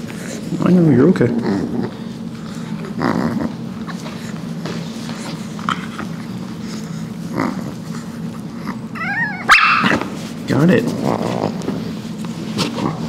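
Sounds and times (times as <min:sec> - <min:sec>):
small dog growling low: 0:00.2 - 0:04.4, 0:05.2 - 0:10.0, 0:10.7 - 0:11.9.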